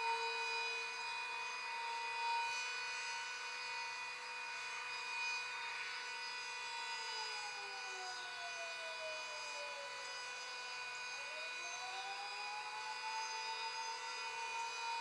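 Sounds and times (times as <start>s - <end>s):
wailing siren: 0.0s - 15.0s
siren steady alert tone: 6.2s - 15.0s.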